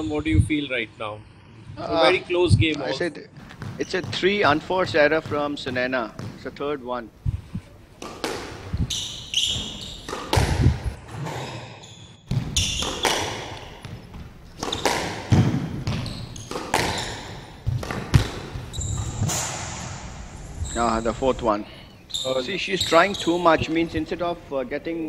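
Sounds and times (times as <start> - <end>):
shoes squeaking on wooden floor: 3.4 - 6.5, 7.3 - 19.4, 22.0 - 23.8
squash ball striking rackets and walls: 3.4 - 6.7, 8.0 - 11.6, 12.2 - 20.3.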